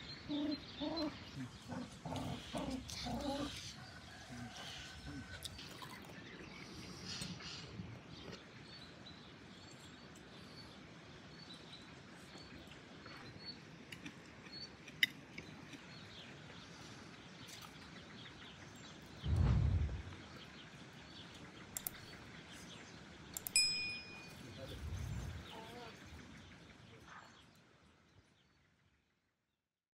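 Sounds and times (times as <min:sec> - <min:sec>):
songbirds chirping: 0:00.0 - 0:29.4
low thump: 0:19.2 - 0:20.2
sharp clicks: 0:21.8 - 0:22.1, 0:23.3 - 0:23.6.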